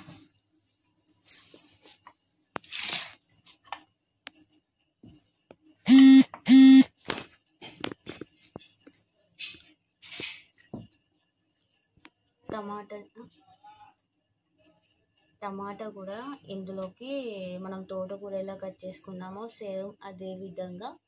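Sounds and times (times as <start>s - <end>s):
loud short tones: 5.9s - 6.9s.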